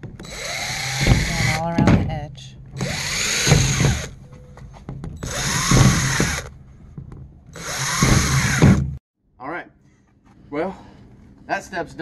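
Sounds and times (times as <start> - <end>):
cordless drill boring plastic: 0.2 - 1.6, 2.8 - 4.1, 5.2 - 6.5, 7.6 - 8.8.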